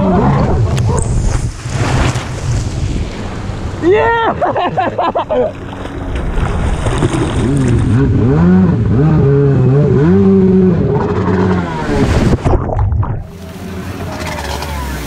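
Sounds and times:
jet ski engine revving: 5.3 - 12.4, 13.2 - 15.0.

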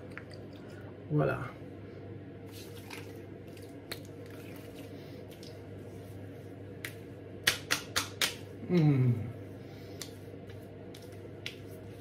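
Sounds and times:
palms slapping skin: 6.8 - 8.9, 9.9 - 12.0
hands rubbing wet skin: 9.8 - 12.0.

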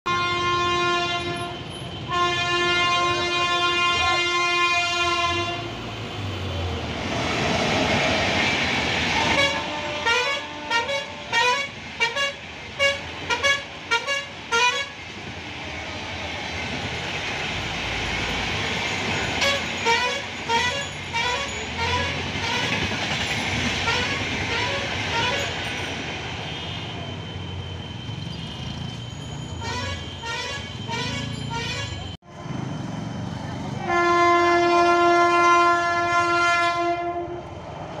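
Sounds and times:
bus horn toots: 0.0 - 5.8, 9.2 - 15.0, 19.4 - 22.8, 29.6 - 32.1, 33.8 - 37.4
vehicle horn blast: 0.1 - 5.7, 9.2 - 15.0, 29.7 - 32.0, 33.8 - 37.4
train rumbling over bridge: 0.1 - 38.0.

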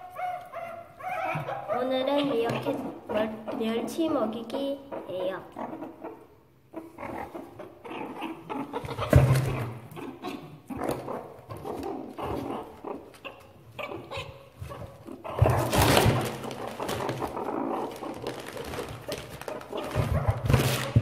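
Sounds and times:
meerkats growling and chattering: 1.0 - 21.0
scrabbling in a cardboard box: 15.4 - 21.0
plastic wrapping crinkling: 15.5 - 21.0.

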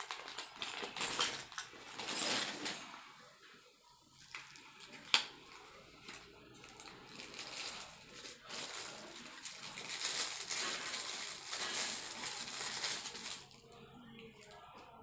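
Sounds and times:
packaging crinkling: 6.7 - 13.6.

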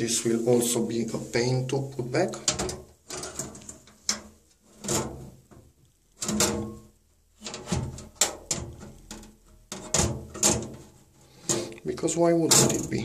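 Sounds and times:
metal panel scraping and clunking: 2.4 - 6.8, 7.4 - 11.7.

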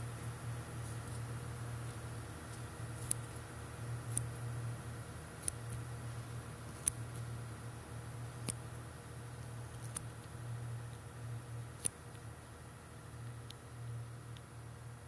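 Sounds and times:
sharp single clicks: 8.4 - 8.6.

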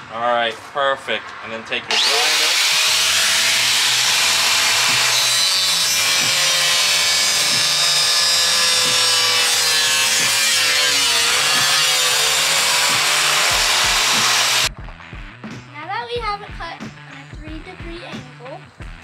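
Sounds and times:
angle grinder cutting siding: 1.9 - 14.7.

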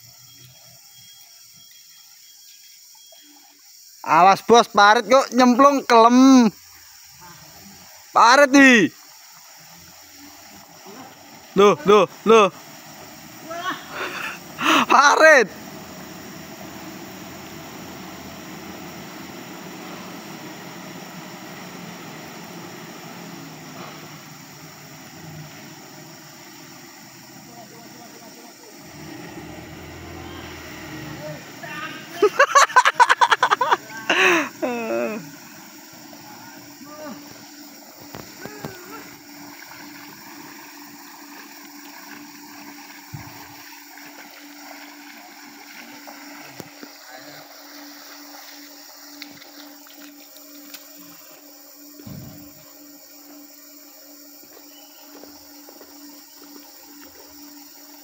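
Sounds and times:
background hiss: 0.0 - 58.0
steady low hum: 9.0 - 58.0
truck engine running: 10.6 - 44.2
boots wading through muddy water: 28.8 - 51.4.

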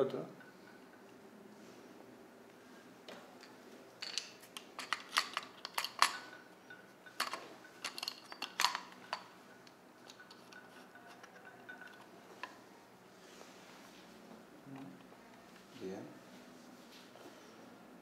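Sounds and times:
metallic clicks and clinks: 3.4 - 12.6.

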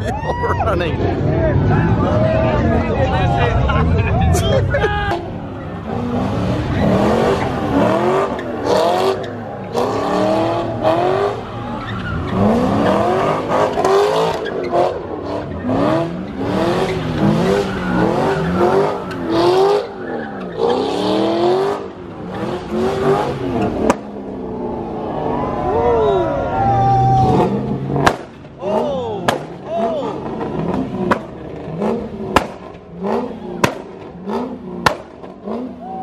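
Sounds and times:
car engine revving: 0.8 - 36.0
tyres squealing: 4.9 - 21.2
sharp crack: 23.8 - 24.2, 27.9 - 29.7, 32.3 - 32.9, 33.6 - 34.2, 34.8 - 35.4.

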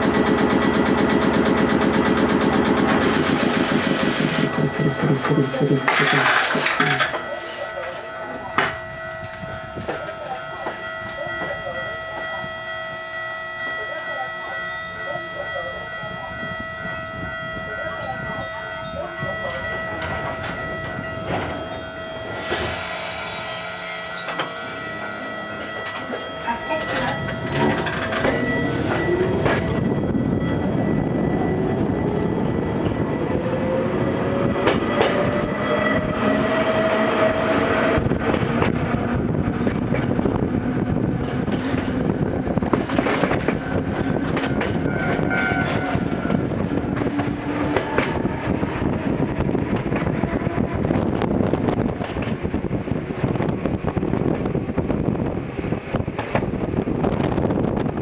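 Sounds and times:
traction motors whining: 19.9 - 51.8.

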